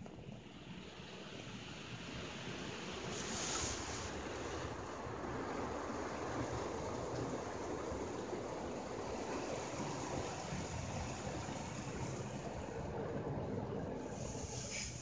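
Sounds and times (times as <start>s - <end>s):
car wash water rushing: 0.0s - 15.0s
car wash machine noise: 9.2s - 15.0s.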